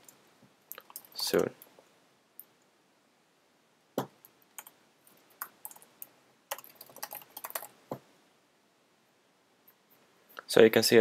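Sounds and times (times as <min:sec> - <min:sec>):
typing on computer keyboard: 0:00.7 - 0:01.5, 0:05.4 - 0:07.7.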